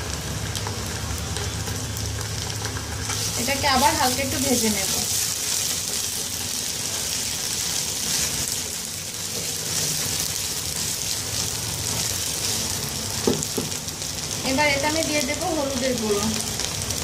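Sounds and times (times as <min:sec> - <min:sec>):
food sizzling in hot oil: 0:00.0 - 0:17.0
spatula stirring in a pan: 0:02.2 - 0:14.4.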